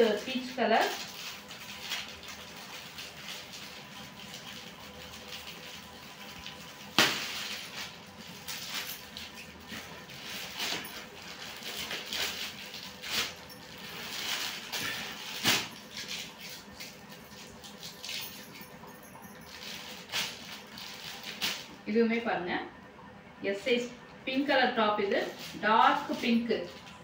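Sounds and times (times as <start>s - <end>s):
loud plastic crackle: 0.0s - 18.4s, 19.5s - 21.8s
plastic bags rustling: 0.0s - 21.8s, 25.1s - 27.0s.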